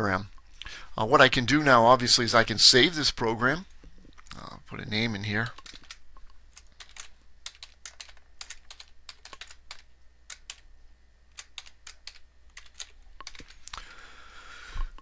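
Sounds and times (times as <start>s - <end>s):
keyboard typing clicks: 5.6s - 10.6s, 11.4s - 13.8s.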